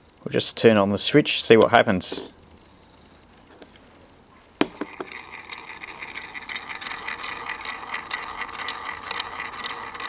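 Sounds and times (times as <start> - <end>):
toy motor whirring: 4.6 - 10.0
gears ticking: 4.7 - 10.0.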